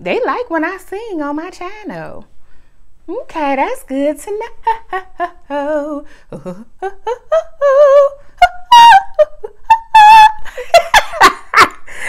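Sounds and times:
woman singing wordless melody: 3.2 - 10.5.

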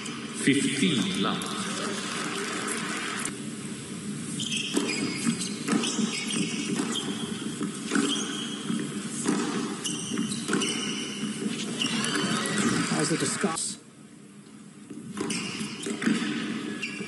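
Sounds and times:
shoes squeaking on court: 4.3 - 13.0, 14.9 - 17.0
racket striking tennis ball: 4.7 - 11.4.

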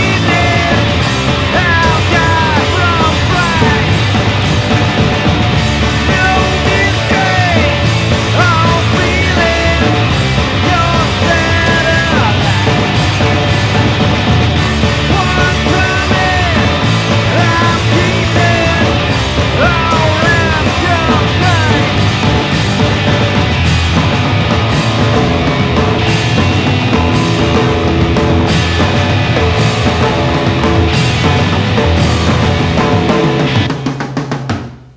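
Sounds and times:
person singing: 0.0 - 5.0, 5.8 - 14.0, 14.8 - 23.4
rock band playing: 0.0 - 34.9.

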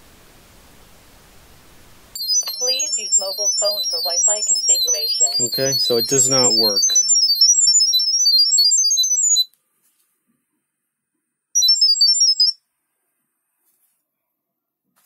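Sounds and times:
short high-pitched beeps: 2.2 - 9.5, 11.6 - 12.6.

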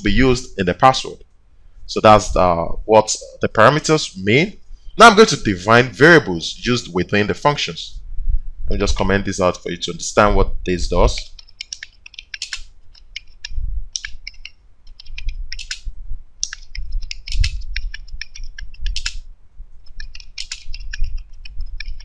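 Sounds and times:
keyboard key clicks: 11.4 - 19.2.

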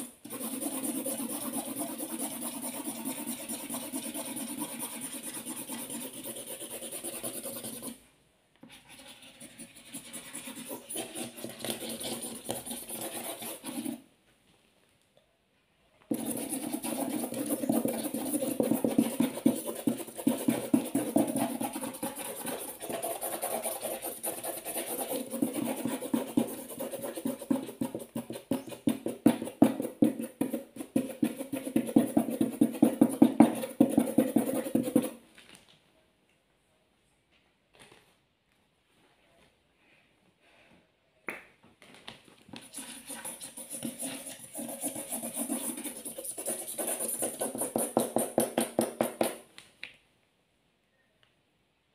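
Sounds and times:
markers scribbling on paper: 0.0 - 8.0, 8.7 - 14.0, 16.1 - 35.2, 42.6 - 48.6.

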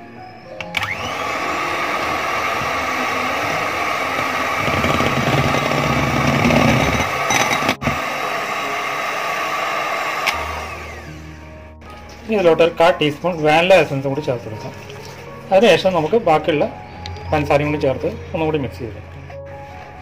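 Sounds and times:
electric hand mixer running: 0.7 - 11.4.

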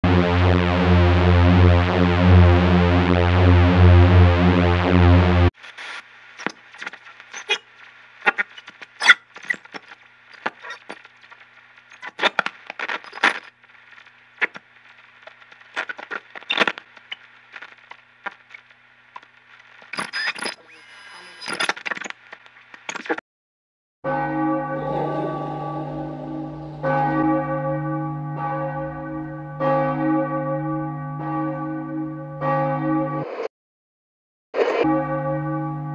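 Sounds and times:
tape static crackles and pops: 5.6 - 23.2
low hum: 24.4 - 29.8.

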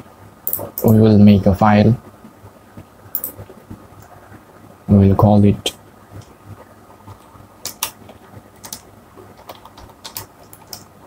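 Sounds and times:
computer keyboard keys clicking: 7.6 - 8.0, 8.6 - 10.9.

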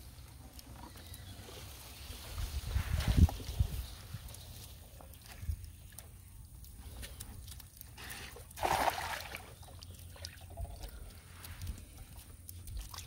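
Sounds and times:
water lapping at a hull: 4.9 - 13.0
net splashing into water: 8.6 - 9.6.

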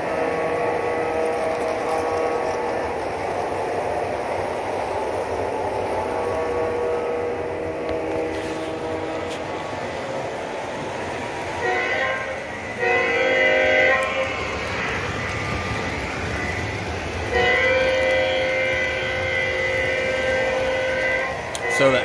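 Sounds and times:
model train horn blasts: 0.0 - 3.0, 6.0 - 9.6, 11.6 - 15.7, 16.3 - 22.0
steady background noise: 0.0 - 22.0.

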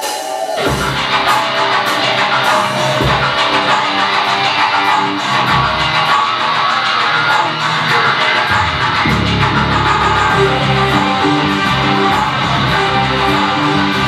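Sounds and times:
cymbal strikes: 0.0 - 14.0
heavy metal band playing: 0.0 - 14.0
heavy low drum hits: 8.5 - 10.8.

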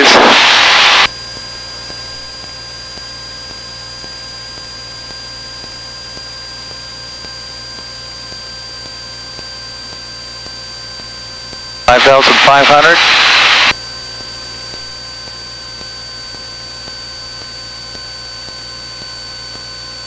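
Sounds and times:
cockpit hiss: 0.0 - 1.1, 11.9 - 13.7
faint high whine: 0.0 - 1.2, 11.6 - 14.2
aircraft engine and propeller drone: 0.0 - 18.4.

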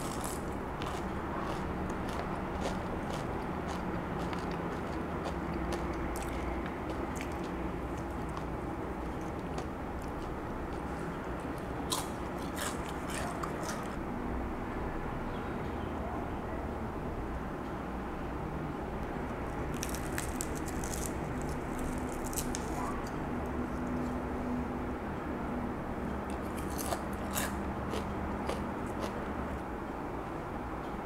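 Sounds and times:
fried chicken crust crackling: 19.7 - 23.0.

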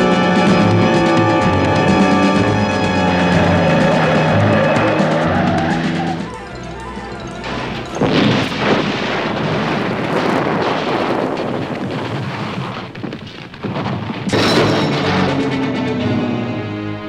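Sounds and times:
dramatic score music: 0.0 - 10.5, 14.2 - 17.0
explosion boom and rumble: 7.4 - 15.6.

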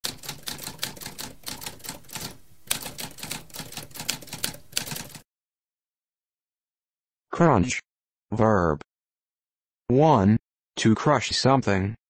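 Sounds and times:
typewriter typing: 0.0 - 5.2.

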